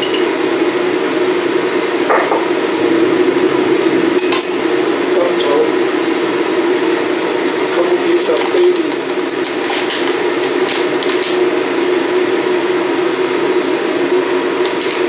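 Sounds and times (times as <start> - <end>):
glass clink: 0.0 - 0.3, 4.2 - 4.6
steady low hum: 0.0 - 15.0.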